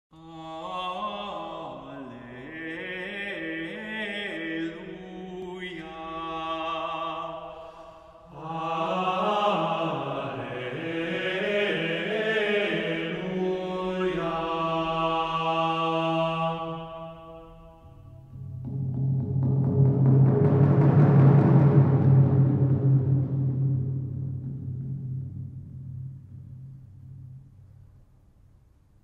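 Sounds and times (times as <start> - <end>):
men's choir chanting: 8.3 - 17.9.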